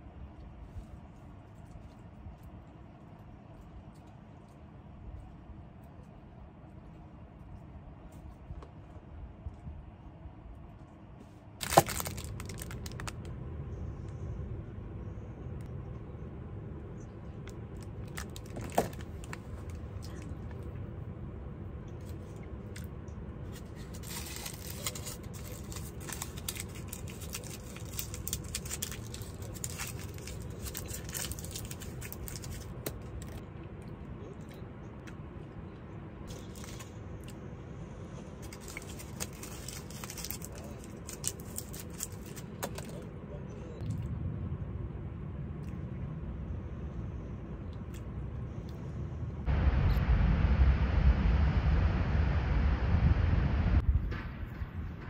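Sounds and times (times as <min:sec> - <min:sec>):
steady low hum: 0:00.0 - 0:55.0
foil wrapper crinkling and tearing: 0:11.6 - 0:13.3, 0:17.7 - 0:20.3, 0:23.5 - 0:33.4, 0:36.3 - 0:37.0, 0:38.4 - 0:43.0.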